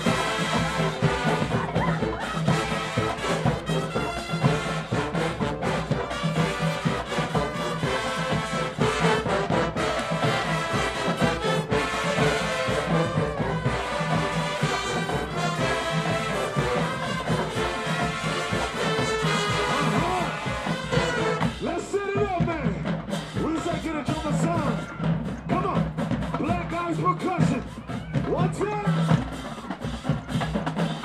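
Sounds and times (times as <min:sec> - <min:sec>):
brass section playing: 0:00.0 - 0:22.2.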